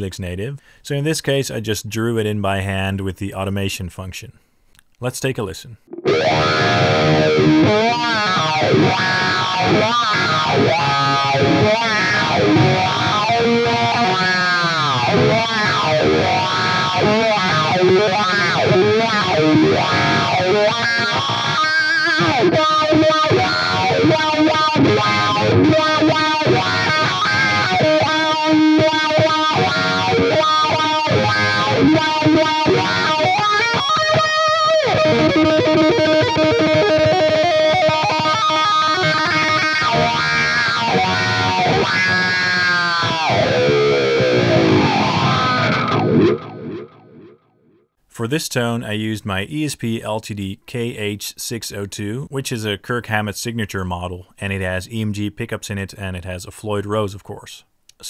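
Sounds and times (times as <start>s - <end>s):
distorted electric guitar with wah: 5.8s - 47.5s.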